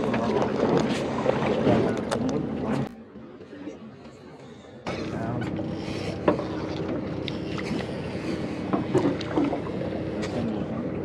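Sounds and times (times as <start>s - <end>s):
distant voices: 0.0s - 11.0s
water noise: 0.0s - 11.0s
wind: 0.0s - 11.0s
outboard motor idling: 4.4s - 11.0s.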